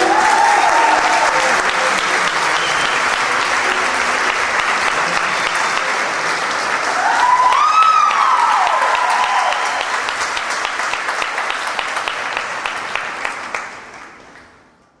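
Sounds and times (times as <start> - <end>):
high whoop: 0.0 - 1.5, 6.9 - 9.8
person clapping: 0.0 - 14.1
audience applauding and cheering: 0.0 - 14.6.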